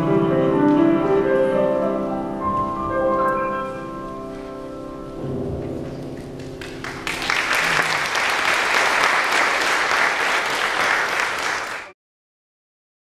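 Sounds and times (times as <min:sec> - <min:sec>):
piano chord: 0:00.0 - 0:08.4
audience applauding: 0:06.4 - 0:12.0.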